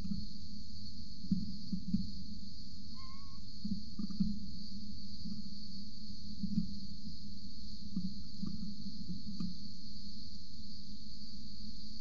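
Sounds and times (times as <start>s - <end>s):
high insect chorus: 0.0s - 12.0s
whistled bird note: 3.0s - 3.4s.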